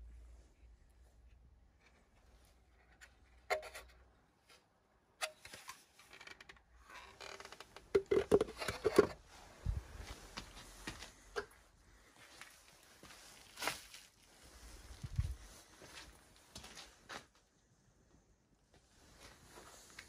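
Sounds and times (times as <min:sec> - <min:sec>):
clatter of plastic taps and scrapes: 0:07.6 - 0:09.2
plastic clicks and knocks: 0:07.8 - 0:09.2.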